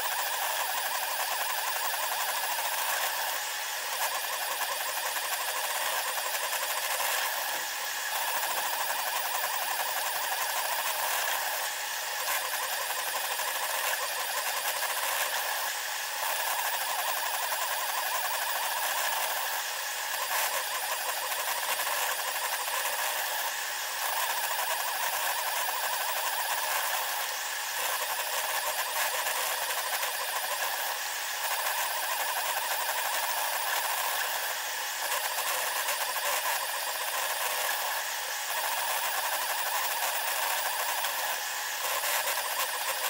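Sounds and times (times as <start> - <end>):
printer motors and fans whirring: 0.0 - 43.0.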